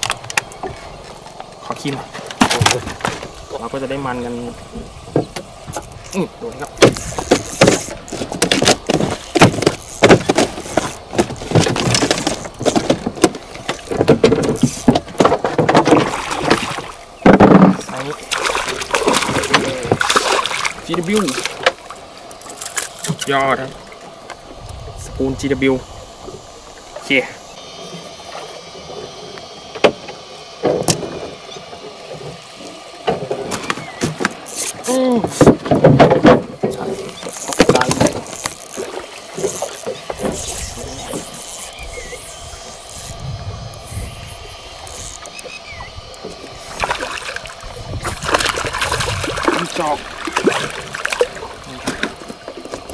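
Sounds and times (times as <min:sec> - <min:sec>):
fishing tackle knocks and clicks: 0:06.7 - 0:16.6, 0:33.5 - 0:41.7
fishing reel clicking: 0:14.6 - 0:14.9, 0:38.2 - 0:46.8.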